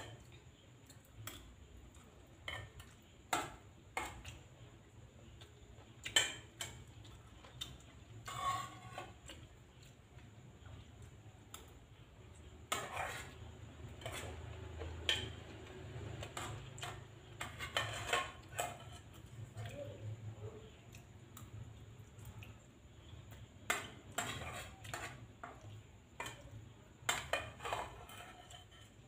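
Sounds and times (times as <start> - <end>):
metal spoon scraping a plate: 2.4 - 4.4, 6.1 - 9.7, 12.6 - 19.8, 23.6 - 29.0.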